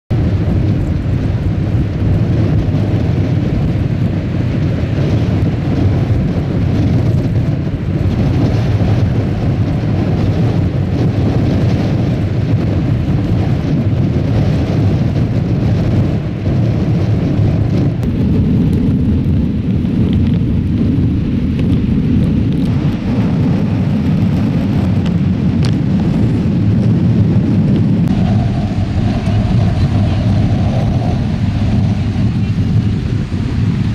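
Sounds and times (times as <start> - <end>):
wind buffeting microphone: 0.0 - 33.9
surf breaking: 22.6 - 33.9.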